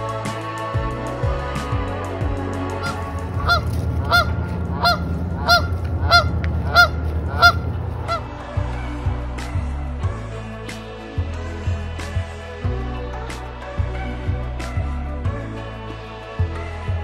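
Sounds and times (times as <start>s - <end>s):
soft background music: 0.0s - 17.0s
goose honking: 2.7s - 8.4s.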